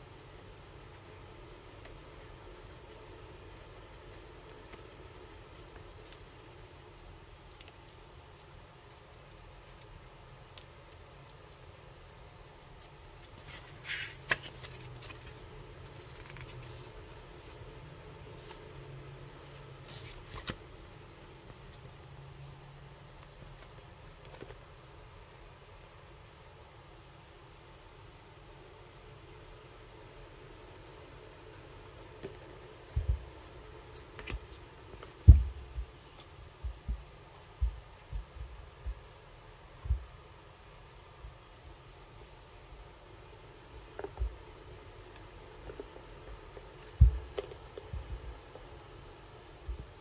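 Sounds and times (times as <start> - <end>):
low steady hum: 0.0 - 50.0
cards thumping and tapping: 34.1 - 39.1, 46.8 - 48.3.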